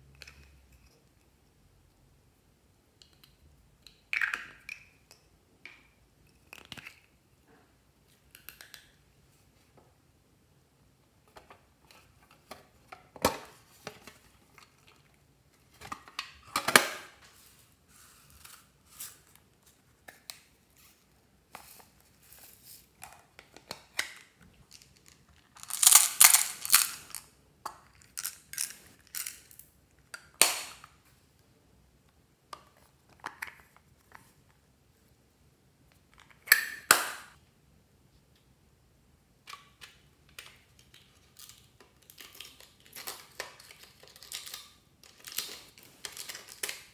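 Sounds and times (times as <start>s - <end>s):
contents rattling in boxes: 25.6s - 27.2s.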